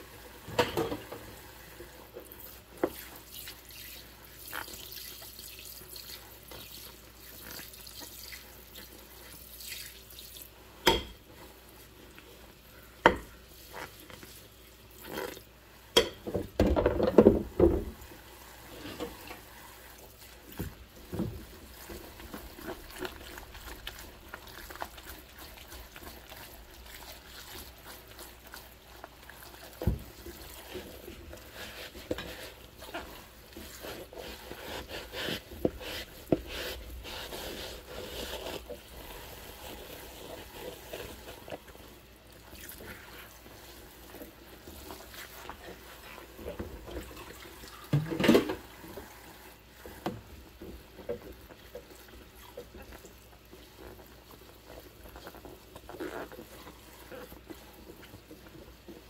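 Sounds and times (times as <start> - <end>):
gloved hands scrubbing bowl: 0.0 - 59.0
water sloshing and splashing: 16.2 - 59.0.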